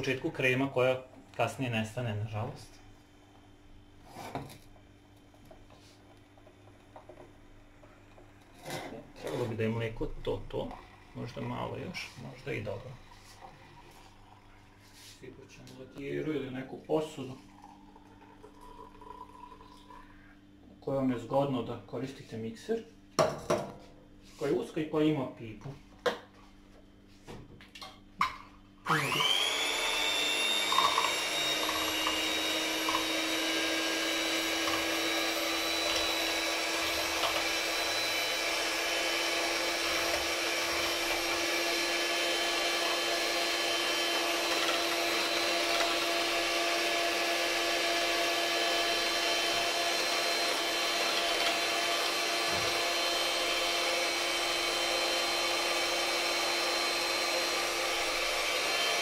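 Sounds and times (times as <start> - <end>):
electric mixer frothing milk: 1.7 - 15.1, 17.0 - 20.2, 28.8 - 59.0.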